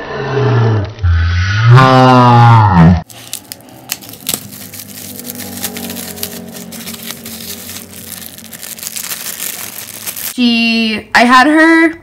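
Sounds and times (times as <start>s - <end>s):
plastic bag crinkling: 3.1s - 10.4s.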